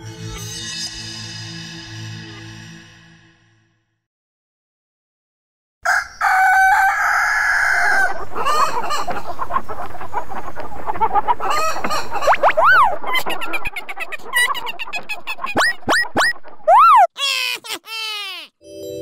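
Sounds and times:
rooster crowing: 0:05.8 - 0:08.7
chickens clucking: 0:05.9 - 0:16.7.

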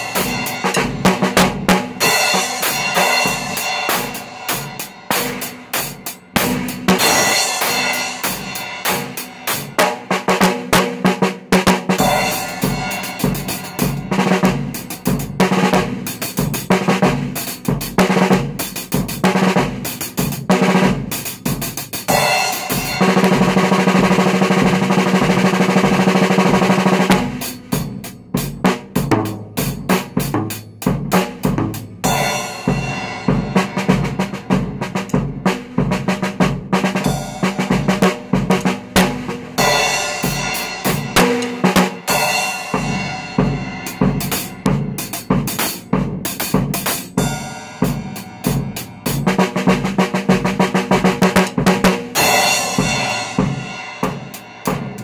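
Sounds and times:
cymbal crash: 0:00.0 - 0:09.8, 0:12.0 - 0:15.0, 0:39.6 - 0:45.0
drum fills: 0:00.0 - 0:55.0
drum roll: 0:00.0 - 0:55.0
bass drum strokes: 0:12.0 - 0:16.8, 0:29.0 - 0:55.0
snare drum strokes: 0:31.2 - 0:55.0.

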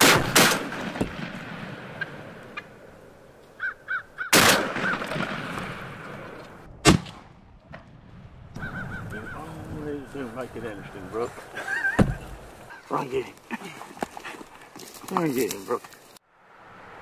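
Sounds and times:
shotgun blasts: 0:00.0 - 0:02.4, 0:04.3 - 0:07.9
bird calls: 0:03.5 - 0:05.0, 0:08.6 - 0:13.0.

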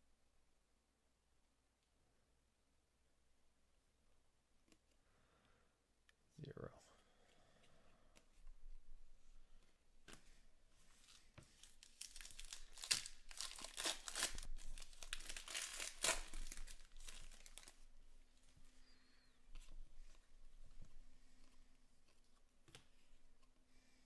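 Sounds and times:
wrapper tearing and crinkling: 0:11.0 - 0:17.9.

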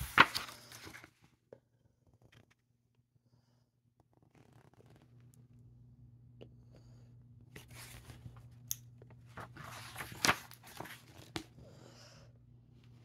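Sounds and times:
book page rustling: 0:00.0 - 0:01.2, 0:04.2 - 0:05.1, 0:07.6 - 0:11.6.

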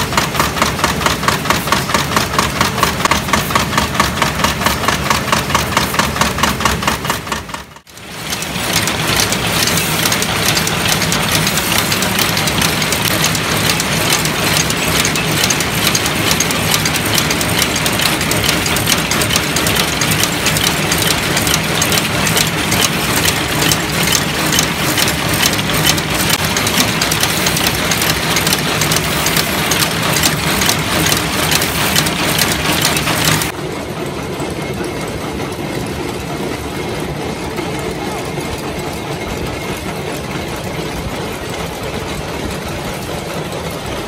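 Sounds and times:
screw blanks rattling in hopper: 0:00.0 - 0:33.6
metal clatter of machine: 0:00.0 - 0:44.0.

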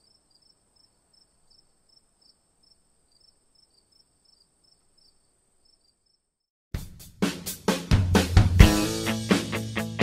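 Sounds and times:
insects chirping: 0:00.0 - 0:06.5.

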